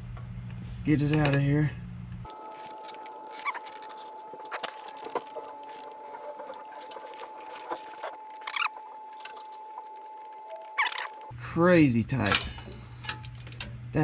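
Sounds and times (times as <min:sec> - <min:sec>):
faint high whine: 0:02.3 - 0:13.3
short squeaks: 0:02.5 - 0:11.3.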